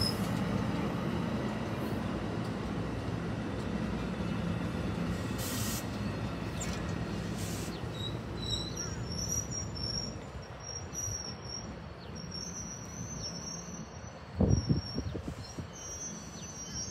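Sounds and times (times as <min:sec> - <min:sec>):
train wheels rumbling: 0:00.0 - 0:16.9
brief hisses: 0:05.3 - 0:05.9.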